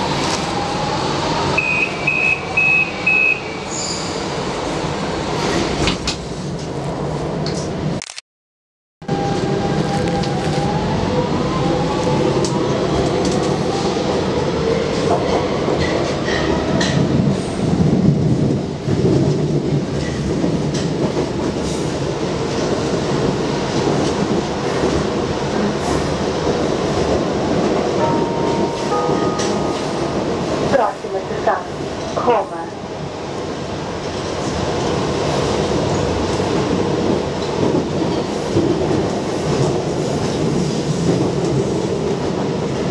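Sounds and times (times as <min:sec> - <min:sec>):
subway train rumble and whine: 0:00.0 - 0:08.0, 0:09.0 - 0:42.9
rail clicks: 0:14.9 - 0:17.4, 0:18.9 - 0:32.3.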